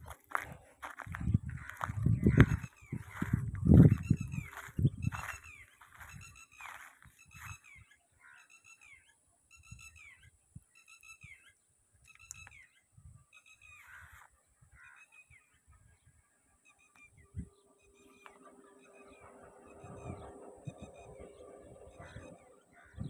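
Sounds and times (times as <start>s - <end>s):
soft low thumps: 0.0s - 6.3s
faint bird calling: 0.3s - 15.7s, 16.6s - 23.0s.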